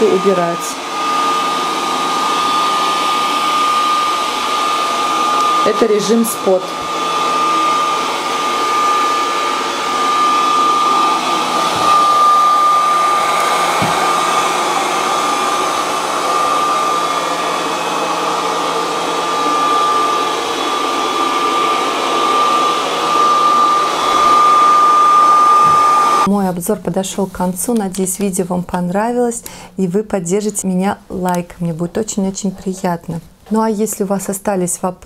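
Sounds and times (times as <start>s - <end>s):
robot vacuum running: 0.0s - 26.3s
high-pitched whine: 2.3s - 26.3s.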